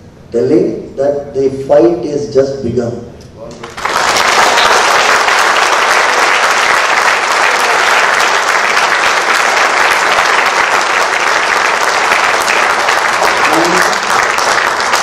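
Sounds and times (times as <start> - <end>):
audience applauding: 3.6 - 15.0.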